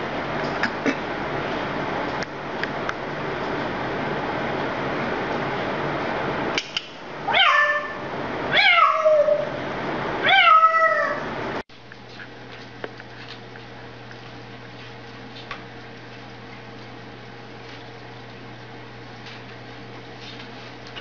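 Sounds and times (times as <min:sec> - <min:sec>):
faint steady hum: 0:00.0 - 0:21.0
parrot imitating cat meows: 0:07.3 - 0:09.5, 0:10.2 - 0:11.3.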